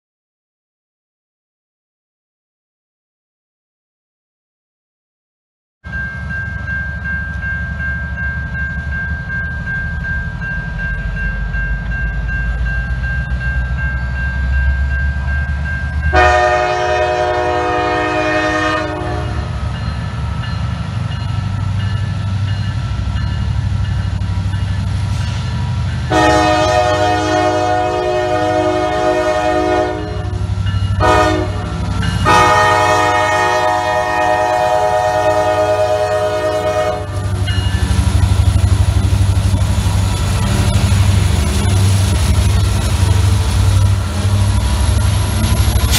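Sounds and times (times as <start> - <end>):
crossing signal bell ringing: 5.9 - 18.0, 29.5 - 33.7, 36.5 - 45.9
train air horn: 16.1 - 19.5, 26.1 - 30.4, 31.0 - 37.2
diesel engines rumbling: 35.1 - 45.9.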